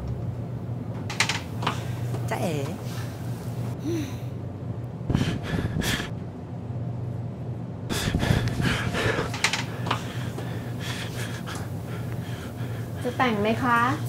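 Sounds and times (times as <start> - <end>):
low steady hum: 0.0 - 14.0
man panting and gasping: 5.1 - 6.1, 7.9 - 13.1.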